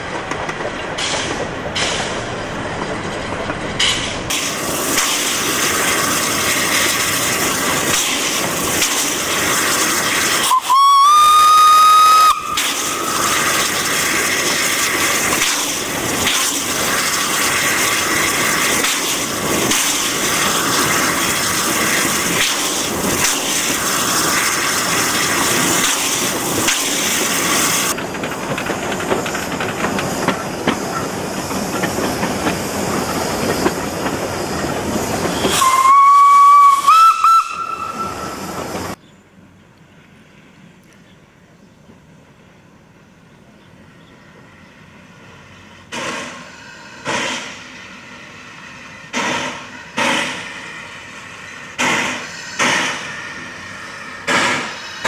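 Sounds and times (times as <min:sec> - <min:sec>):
steam locomotive running: 0:00.0 - 0:55.0
train running past: 0:00.0 - 0:55.0
steam whistle blast: 0:10.4 - 0:13.2, 0:35.6 - 0:38.4.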